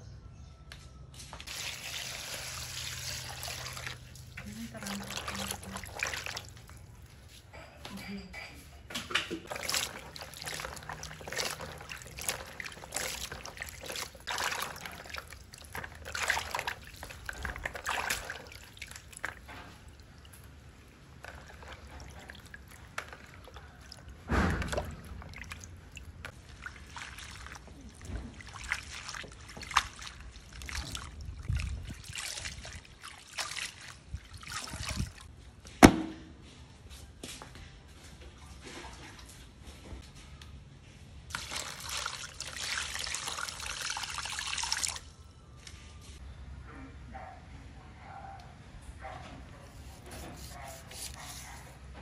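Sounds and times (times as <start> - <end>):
hands splashing vegetables in water: 1.5 - 6.9, 9.2 - 35.3, 41.3 - 45.0.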